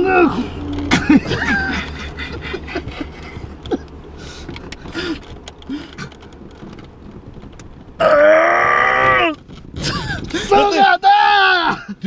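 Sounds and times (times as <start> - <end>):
steady low hum: 0.0 - 8.2
heavy breathing: 4.1 - 6.2
men grunting: 10.0 - 12.0
man yelling in strain: 10.4 - 11.9.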